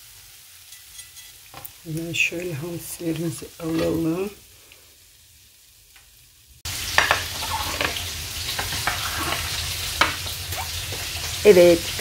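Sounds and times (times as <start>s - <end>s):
fish sizzling in hot oil: 0.0s - 12.0s.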